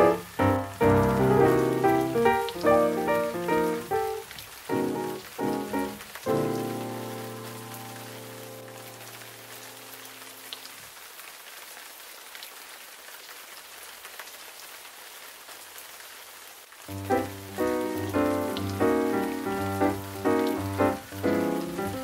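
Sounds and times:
raindrop ticks: 0.0 - 9.4, 16.9 - 22.0
steady rain falling: 0.0 - 22.0
soft background music: 16.9 - 22.0.

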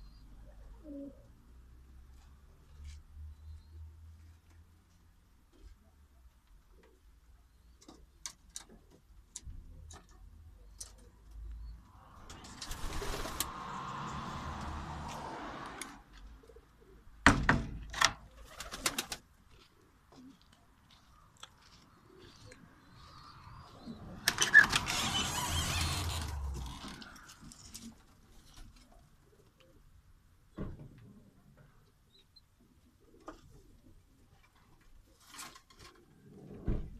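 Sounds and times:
pigeons cooing: 0.0 - 1.4, 21.9 - 25.8
noisy stretches: 22.4 - 28.0.

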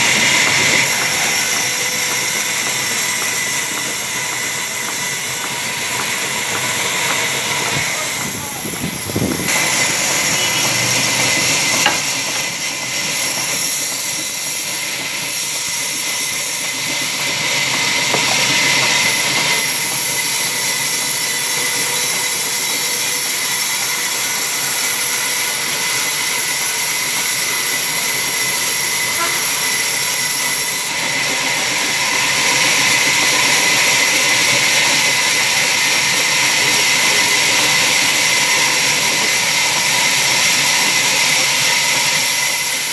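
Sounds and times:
band saw cutting log: 0.0 - 42.9.

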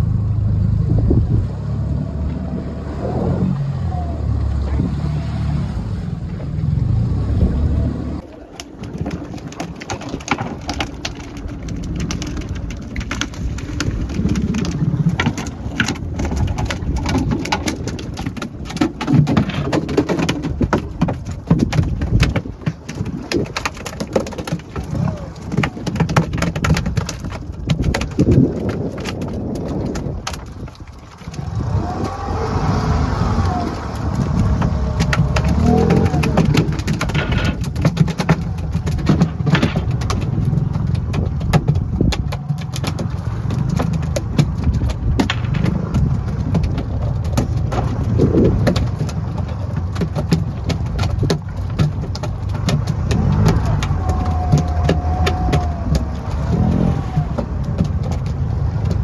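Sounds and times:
boat motor running: 0.0 - 59.0
sharp knocks and clatter: 8.2 - 59.0.

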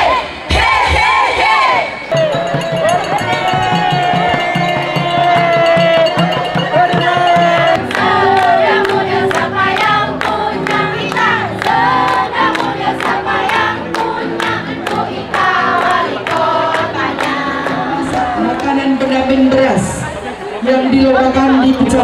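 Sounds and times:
women singing together: 0.0 - 19.3
hand claps: 2.1 - 18.7.

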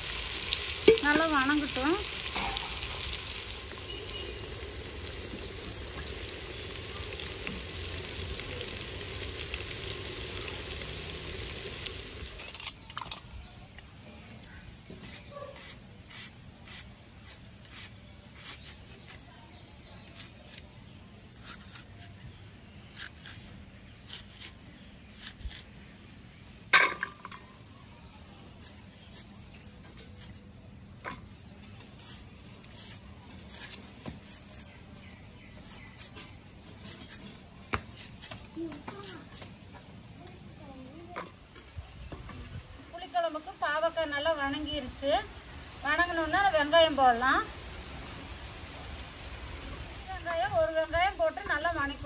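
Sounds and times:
vegetables sizzling in oil: 0.0 - 12.6, 41.5 - 52.0.

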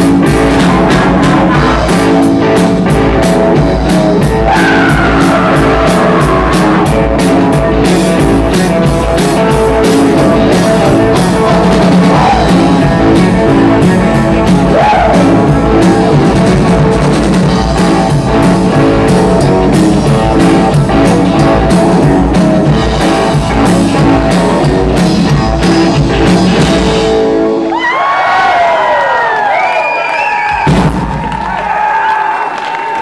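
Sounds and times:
live rock band playing: 0.0 - 28.9, 30.4 - 31.6
crowd cheering and whistling: 4.3 - 7.1, 27.5 - 33.0.

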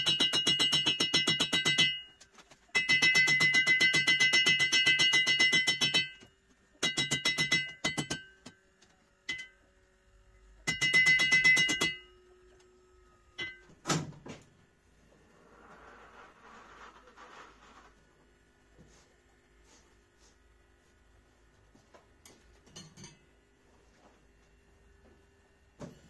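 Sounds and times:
hammer striking anvil: 0.0 - 2.2, 2.8 - 8.6, 9.3 - 9.6, 10.6 - 12.2, 13.4 - 13.8.

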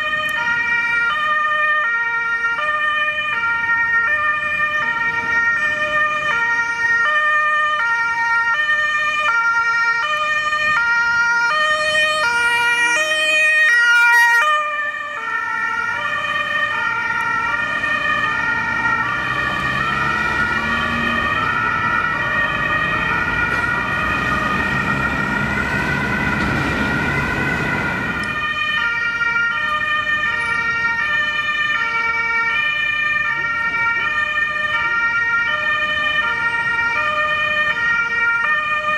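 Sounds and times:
two-tone emergency siren: 0.0 - 38.9
vehicle engine and tyre noise: 0.0 - 38.9.

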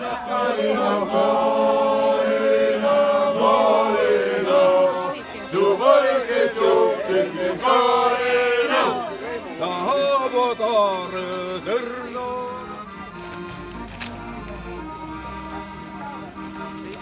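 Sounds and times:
men singing in polyphonic harmony: 0.0 - 12.4.

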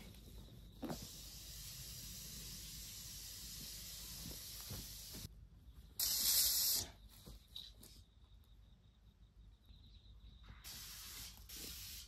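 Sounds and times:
aerosol spray can hissing: 0.8 - 5.3, 6.0 - 7.0, 10.6 - 12.0.

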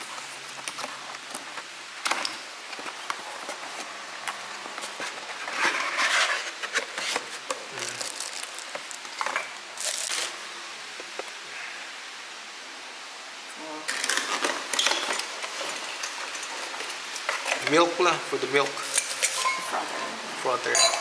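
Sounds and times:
cardboard packaging rustling: 0.0 - 11.4.

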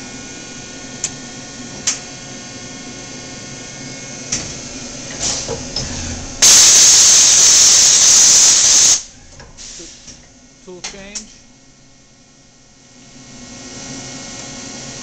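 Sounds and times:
machine humming: 0.0 - 15.0
air hissing: 5.2 - 10.2.

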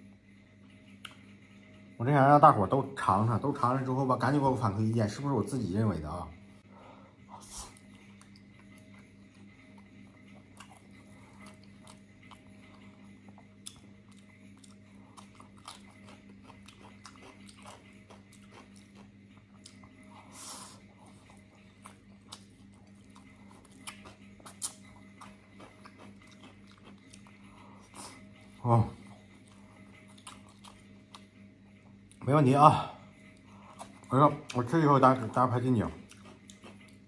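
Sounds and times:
steady low hum: 0.0 - 37.0
open-mouthed chewing and lip-smacking: 7.3 - 32.2, 33.3 - 37.0.

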